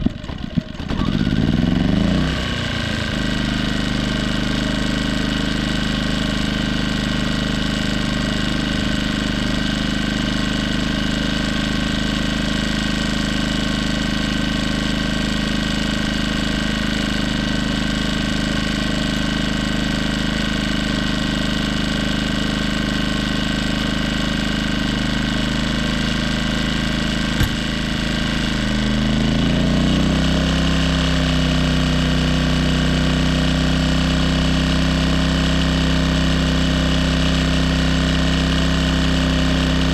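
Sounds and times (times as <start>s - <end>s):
generator running: 0.0s - 39.9s
sharp click: 27.4s - 27.8s.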